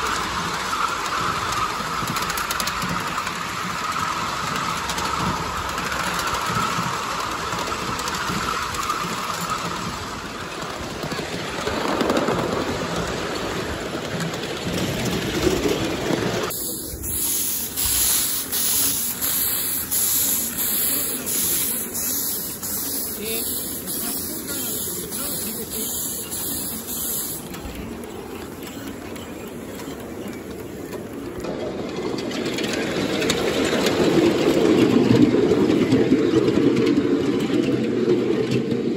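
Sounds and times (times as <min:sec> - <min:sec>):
steam locomotive puffing: 0:16.4 - 0:27.9.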